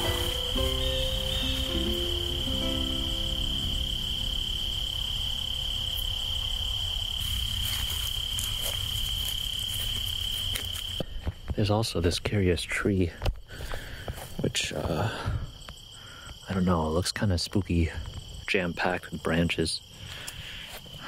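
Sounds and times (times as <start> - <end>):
low held notes: 0.0 - 6.1
crickets trilling: 0.0 - 21.0.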